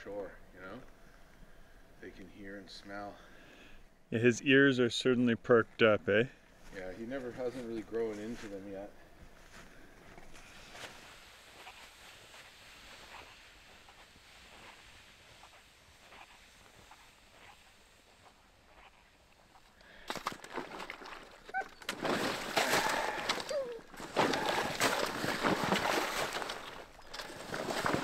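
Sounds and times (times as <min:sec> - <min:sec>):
soft crunches in snow: 0:06.6 - 0:19.8, 0:20.5 - 0:28.0
sled sloshing through slush: 0:20.6 - 0:28.0.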